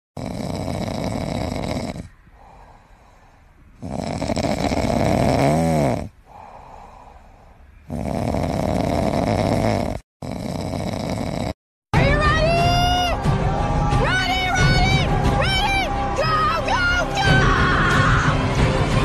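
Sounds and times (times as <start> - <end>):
puppy snoring: 0.2 - 2.2, 3.8 - 6.3, 7.8 - 11.6.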